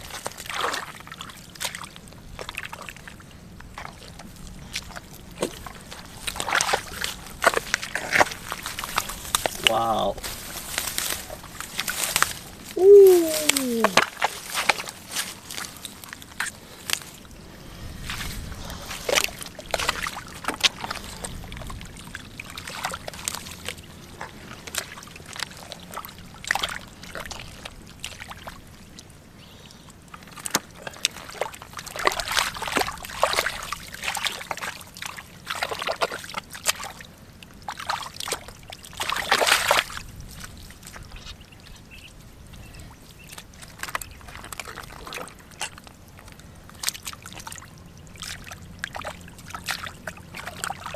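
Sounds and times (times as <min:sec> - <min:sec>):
hands squelching through mud: 0:03.7 - 0:17.2, 0:37.6 - 0:41.4.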